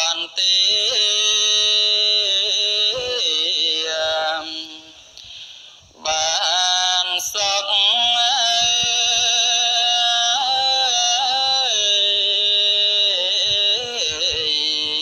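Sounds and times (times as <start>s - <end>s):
devotional chanting: 0.0s - 15.0s.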